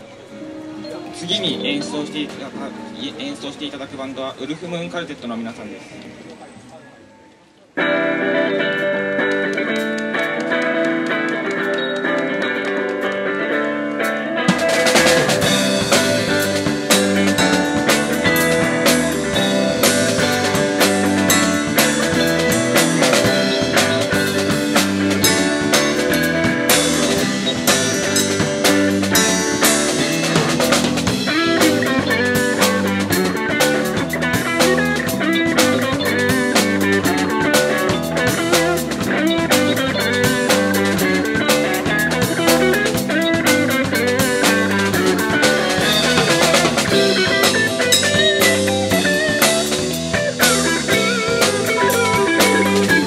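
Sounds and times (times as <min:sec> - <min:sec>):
electric guitar: 0:07.8 - 0:53.0
drum kit groove: 0:09.2 - 0:53.0
bass line: 0:14.5 - 0:53.0.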